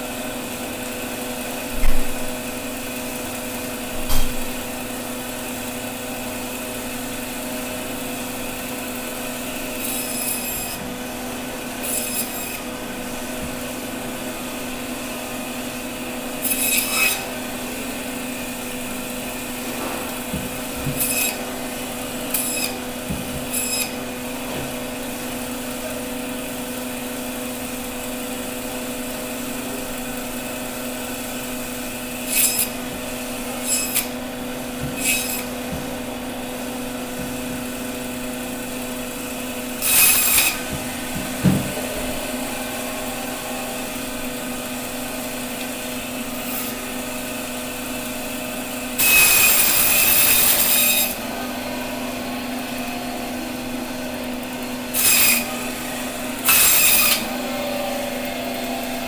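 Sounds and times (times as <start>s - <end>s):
band saw humming: 0.0s - 59.0s
saw blade rasping through fish: 9.6s - 10.8s, 11.8s - 12.7s, 16.4s - 17.4s, 20.1s - 24.1s, 32.0s - 34.2s, 34.8s - 35.6s, 39.7s - 41.9s, 49.0s - 51.2s.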